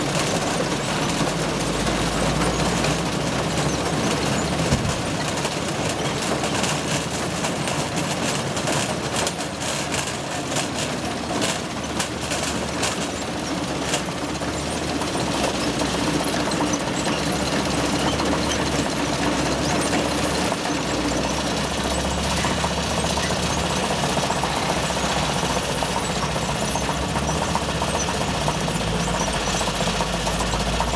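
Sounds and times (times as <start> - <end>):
conveyors and vibrating shaker: 0.0 - 30.9
deep engine rumble: 10.4 - 30.9.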